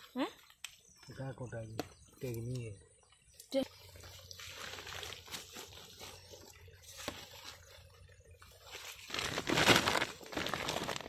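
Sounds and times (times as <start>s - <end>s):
plastic sack crinkling: 8.5s - 11.0s.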